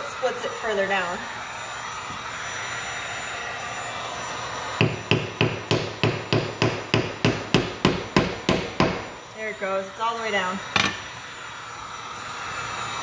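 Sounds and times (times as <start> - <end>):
heat gun blowing: 0.0 - 13.0
hammer tapping wooden wedge: 4.8 - 9.0.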